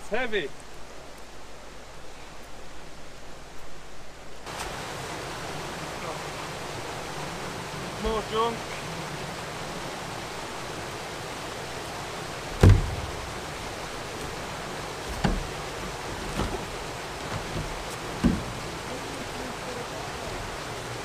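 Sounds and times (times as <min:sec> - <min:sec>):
steady rushing noise: 0:01.0 - 0:21.0
sharp knocks: 0:12.6 - 0:13.6, 0:15.0 - 0:18.8.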